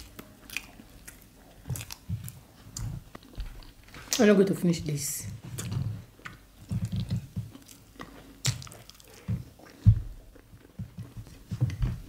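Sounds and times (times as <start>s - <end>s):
wet chewing with mouth clicks: 0.0s - 4.3s, 5.4s - 11.8s.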